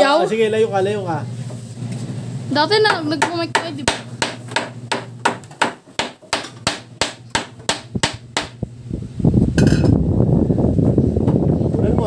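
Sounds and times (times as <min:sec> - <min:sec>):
hammer driving nail into wood: 0:03.9 - 0:08.6.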